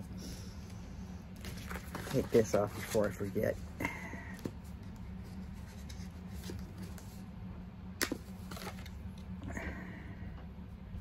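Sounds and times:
steady low hum: 0.0s - 11.0s
cards and paper handled: 1.4s - 3.6s, 4.3s - 7.2s, 8.0s - 9.3s.

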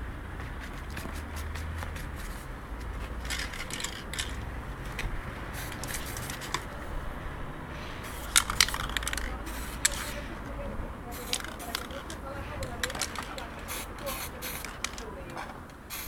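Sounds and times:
spray paint hissing: 0.5s - 4.4s, 5.5s - 6.7s, 7.8s - 10.4s, 11.1s - 15.1s
spray cans clinking: 3.0s - 6.7s, 8.0s - 10.3s, 11.1s - 16.0s.

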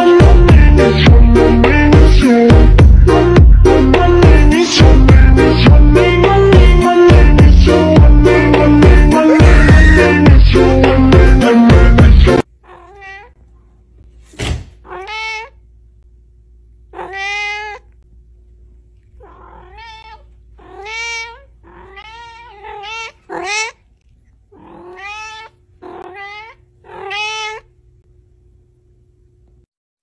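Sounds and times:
cat meowing: 12.6s - 13.4s, 14.8s - 15.6s, 16.9s - 17.9s, 19.2s - 23.8s, 24.5s - 27.7s.

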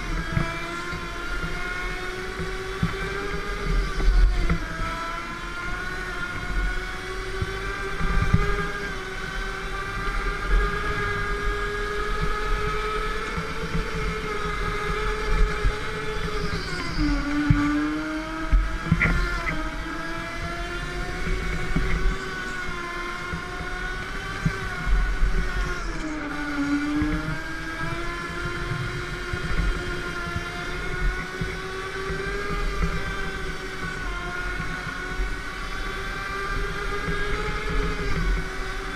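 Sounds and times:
go-kart motor whine: 0.0s - 38.9s.

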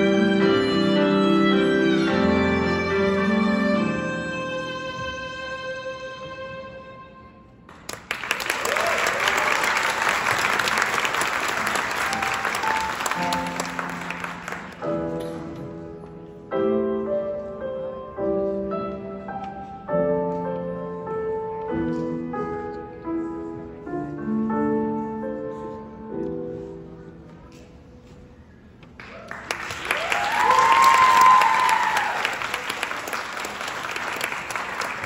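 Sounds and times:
slow piano piece: 0.0s - 8.3s, 9.8s - 35.0s
audience applause: 7.7s - 14.8s, 29.0s - 35.0s.

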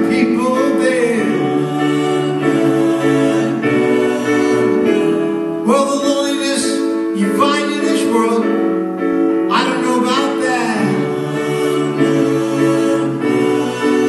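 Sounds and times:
man singing slow song: 0.0s - 1.5s, 5.6s - 8.6s, 9.5s - 11.1s
held keyboard chords: 0.0s - 14.0s
piano: 0.0s - 14.0s.

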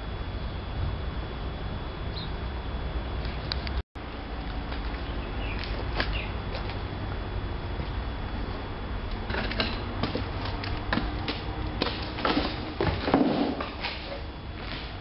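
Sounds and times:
footsteps crunching on rubble: 4.3s - 15.0s.

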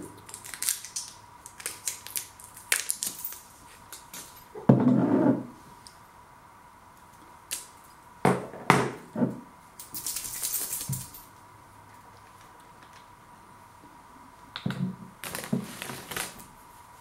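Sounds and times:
faint steady whine: 0.0s - 17.0s
crisp bag crinkling: 15.2s - 16.5s.

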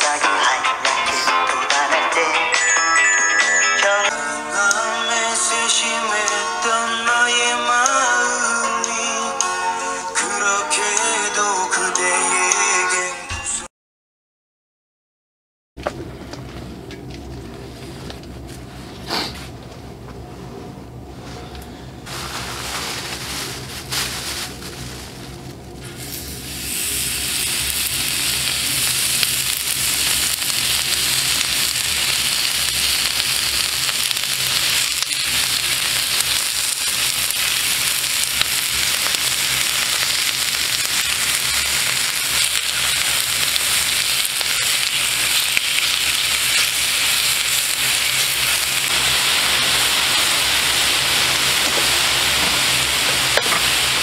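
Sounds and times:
meat sizzling in a pan: 26.0s - 54.0s.

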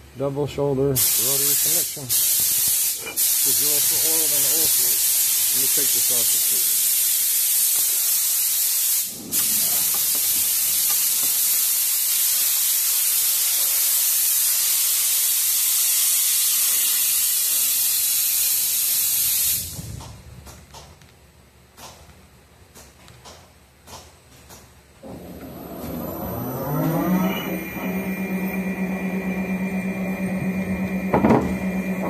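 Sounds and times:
hiss of spray: 1.0s - 19.9s.

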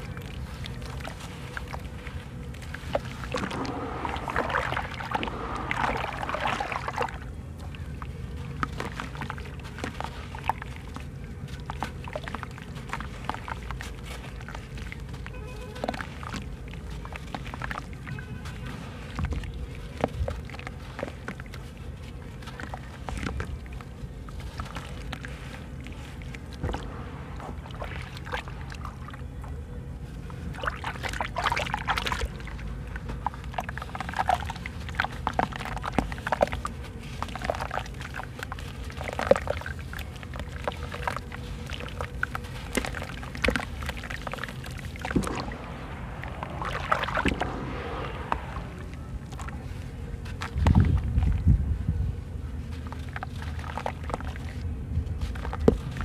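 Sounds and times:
sand trickling into water: 0.0s - 56.0s
water sloshing: 0.0s - 56.0s
wet slurry squelching: 0.0s - 56.0s.

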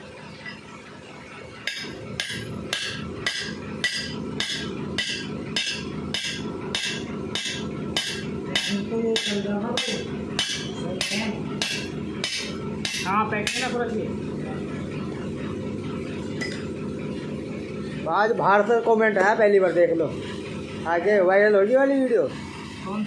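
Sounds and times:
hammer striking metal: 1.6s - 13.8s, 16.4s - 16.7s.

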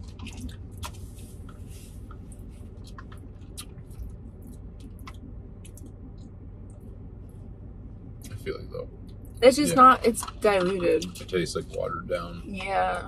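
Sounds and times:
chewing smacks: 0.0s - 1.0s, 2.8s - 6.3s
low car cabin hum: 0.0s - 13.0s.

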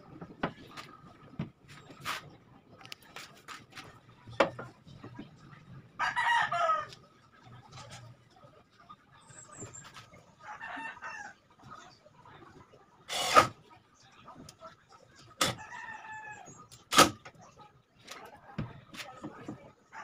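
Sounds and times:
rooster crowing: 6.0s - 7.0s, 10.4s - 11.4s
cordless drill driving screw: 13.1s - 13.5s.

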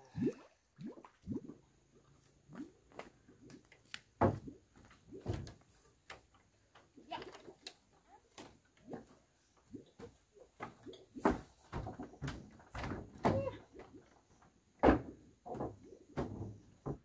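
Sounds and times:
footsteps on wooden stairs: 10.0s - 13.5s.

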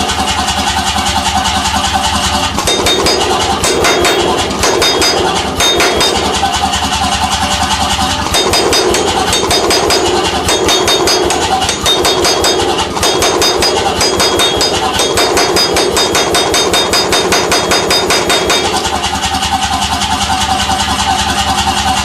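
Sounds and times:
forging hammer striking steel: 2.4s - 19.6s
machine hum: 2.5s - 7.3s, 8.0s - 19.7s.

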